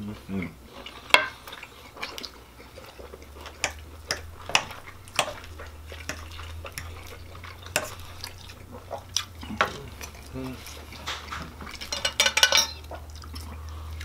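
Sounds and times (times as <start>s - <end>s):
knife and fork scraping plates: 1.1s - 1.4s, 11.0s - 12.9s.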